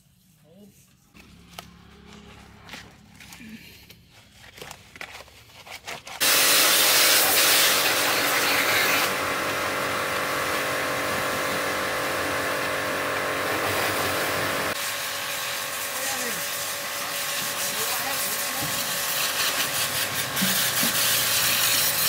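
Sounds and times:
machine motor hissing and humming: 0:06.2 - 0:22.0.

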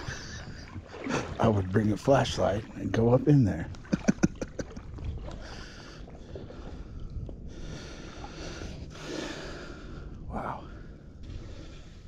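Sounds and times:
creek water sloshing around legs: 0:00.0 - 0:06.9.

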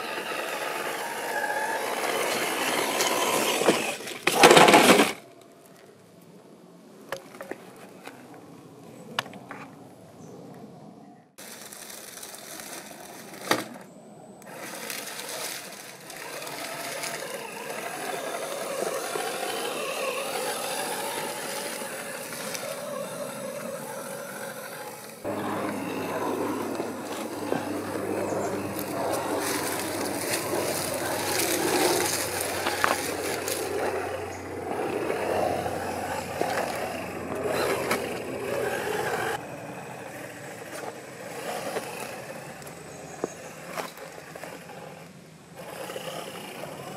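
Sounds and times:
toy car motor whirring: 0:00.0 - 0:05.2, 0:11.4 - 0:13.8, 0:14.4 - 0:46.9
tyres scraping on rock: 0:00.0 - 0:05.3, 0:11.4 - 0:46.9
steady low hum: 0:13.4 - 0:46.9.

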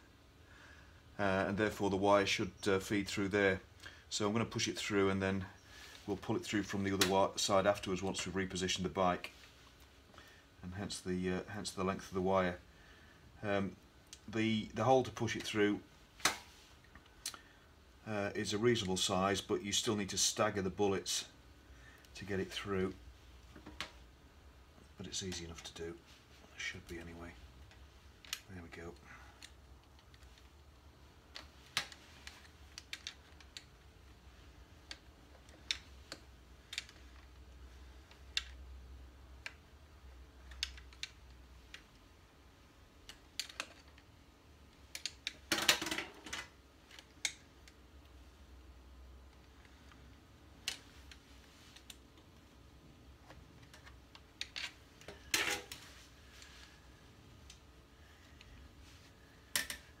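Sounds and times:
clicks and rattles of wires: 0:26.7 - 0:42.1, 0:43.0 - 0:48.2, 0:49.0 - 0:56.8, 0:59.4 - 1:00.0.

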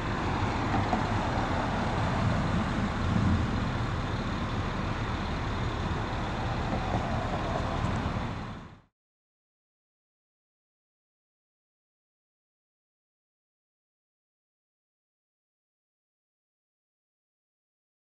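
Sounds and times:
diesel truck engines idling: 0:00.0 - 0:08.9
traffic noise: 0:00.0 - 0:08.9.

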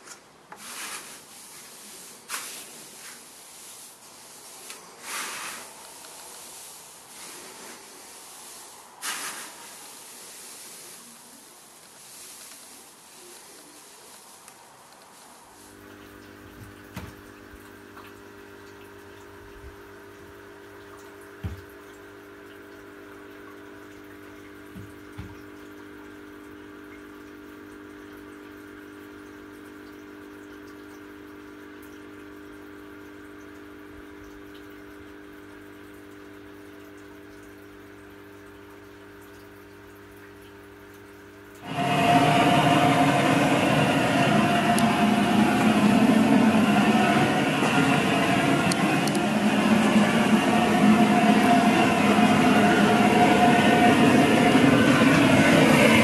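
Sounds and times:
electric pumps humming: 0:14.8 - 0:56.0
water dripping: 0:15.7 - 0:41.7.

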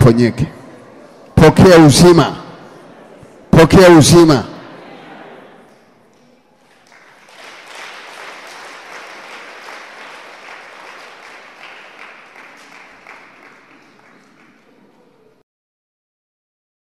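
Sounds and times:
congregation applauding: 0:06.6 - 0:15.3.

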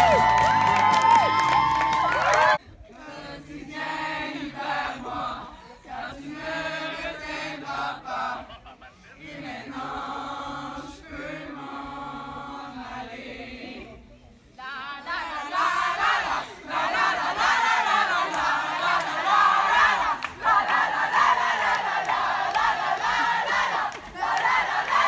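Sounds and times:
girls singing in unison: 0:09.2 - 0:13.9, 0:14.6 - 0:25.0.

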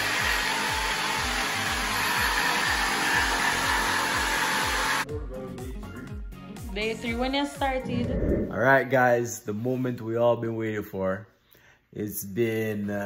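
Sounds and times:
electric blower rushing: 0:00.0 - 0:05.0.

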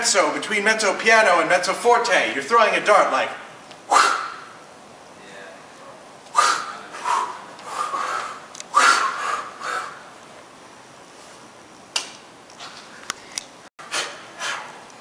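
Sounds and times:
person exhaling hard through mouth: 0:03.9 - 0:04.4, 0:06.4 - 0:10.0.

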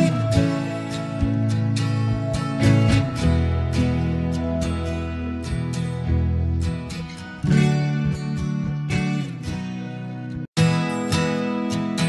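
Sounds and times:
strummed acoustic guitar music: 0:00.0 - 0:12.0.

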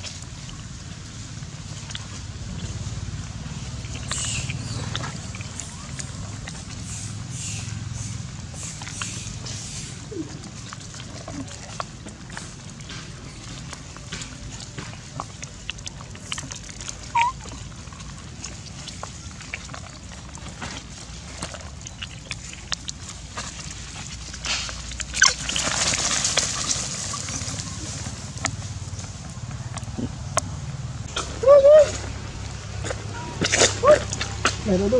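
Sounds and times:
monkeys clicking and rustling: 0:01.5 - 0:34.9
monkey high squeak: 0:17.1 - 0:17.5.

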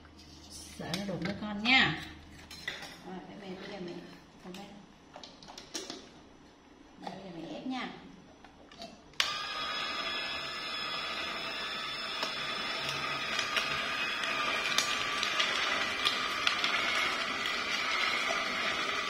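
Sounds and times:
juicer motor hum: 0:09.2 - 0:19.0.

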